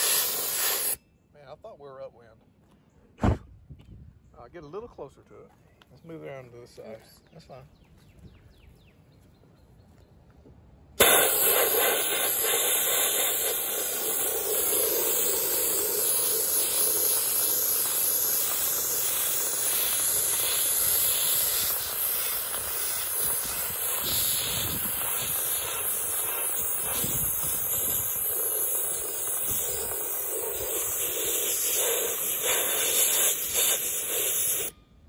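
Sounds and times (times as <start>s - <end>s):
compressed air blasting hiss: 0.0s - 1.0s, 11.0s - 34.7s.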